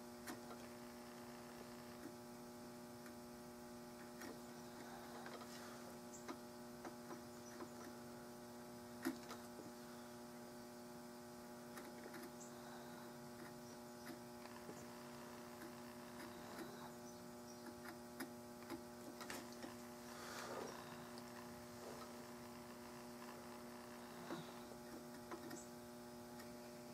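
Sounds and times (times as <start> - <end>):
mains hum: 0.0 - 26.9
checkering tool scratching wood: 11.7 - 16.9.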